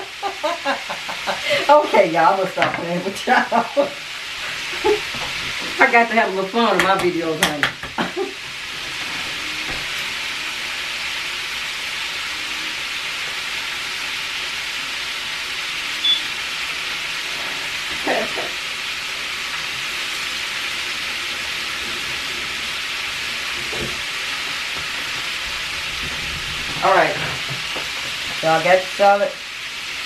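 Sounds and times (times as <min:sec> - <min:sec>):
chicken frying sizzle: 0:00.0 - 0:30.0
short high beep: 0:16.0 - 0:16.3.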